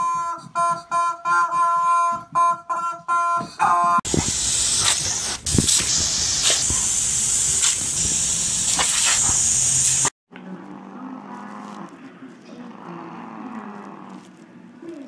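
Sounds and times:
hose water jet hissing: 4.0 - 10.1
water spattering: 4.1 - 10.1.

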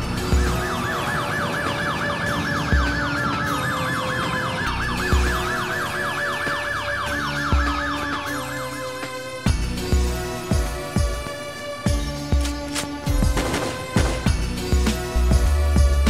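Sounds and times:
fast yelping siren: 0.0 - 9.4
falling siren wail: 0.0 - 9.5
music track: 0.0 - 16.0.

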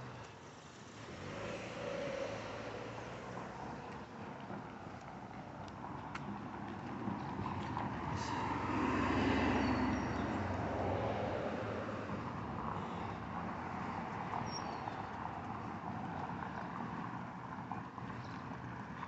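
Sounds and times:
vehicle passing by: 0.8 - 18.9.

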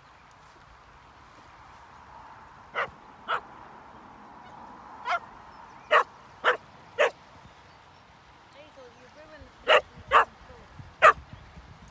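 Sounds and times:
dog barking: 2.8 - 3.4, 5.0 - 5.3, 5.9 - 7.2, 9.6 - 10.3, 11.0 - 11.2.

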